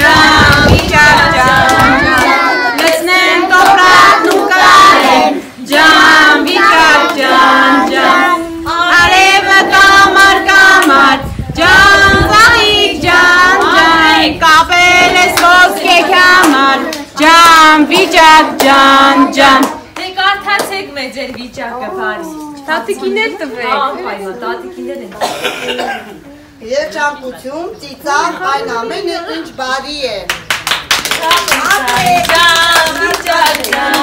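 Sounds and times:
children and women singing: 0:00.0 - 0:21.6, 0:31.4 - 0:34.0
hand clapping: 0:30.3 - 0:34.0.

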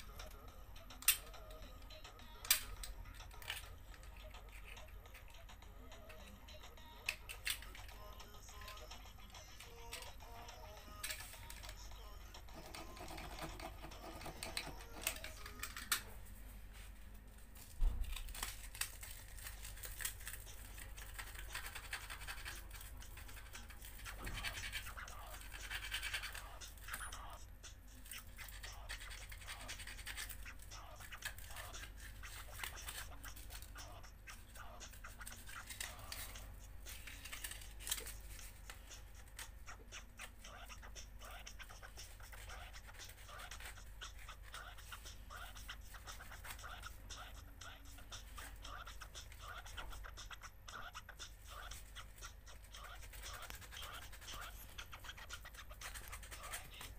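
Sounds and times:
hands scratching plastic: 0:12.5 - 0:16.1, 0:17.4 - 0:56.9.

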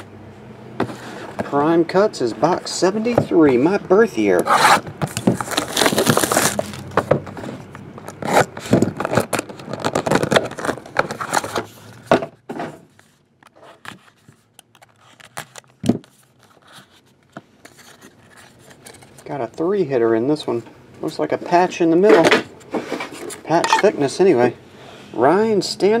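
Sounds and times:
plastic wrap tearing and crinkling: 0:05.1 - 0:07.0, 0:08.2 - 0:11.6.

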